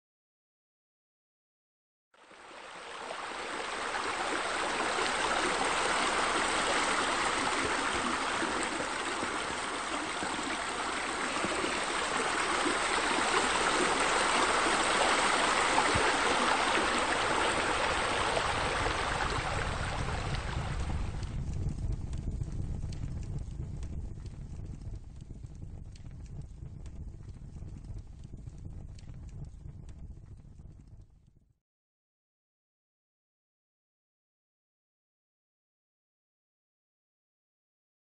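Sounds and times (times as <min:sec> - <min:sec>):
running water rushing: 0:02.2 - 0:21.4.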